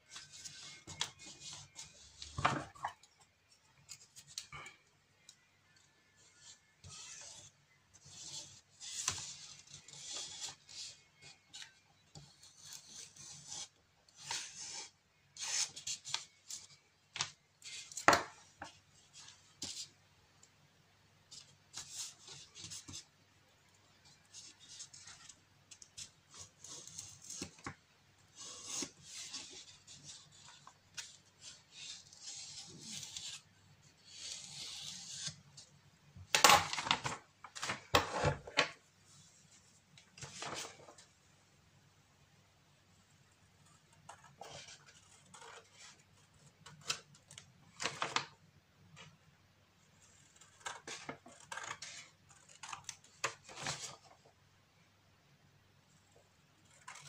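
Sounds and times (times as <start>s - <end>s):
scissors cutting paper: 28.4s - 35.4s, 50.1s - 53.9s, 56.6s - 57.0s
paper rustling: 36.5s - 41.2s, 44.0s - 48.4s.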